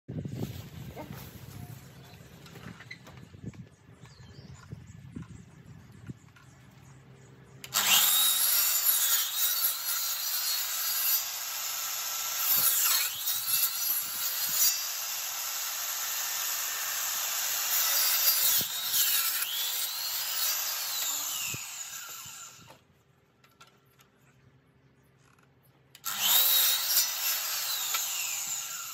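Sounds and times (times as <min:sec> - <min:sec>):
mitre saw cutting wood: 0:07.6 - 0:22.8, 0:26.0 - 0:28.9.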